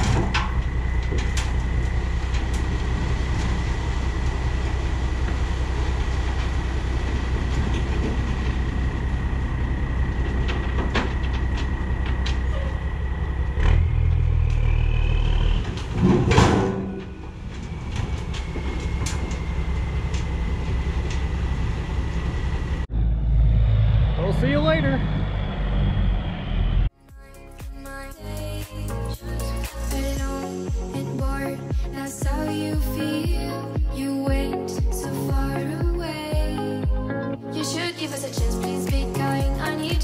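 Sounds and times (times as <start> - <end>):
diesel truck engine running: 0.0 - 40.0
engine surge with rush of noise: 7.5 - 26.9.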